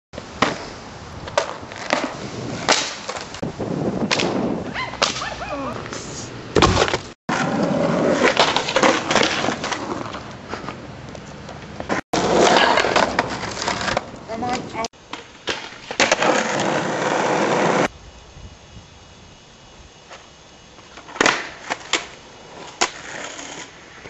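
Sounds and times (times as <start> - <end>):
skateboard rolling on pavement: 0.2 - 17.9, 19.1 - 24.0.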